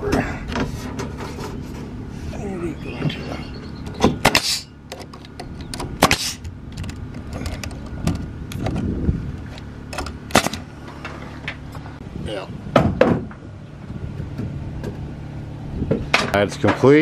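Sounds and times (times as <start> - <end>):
nail gun firing: 6.0 - 6.4.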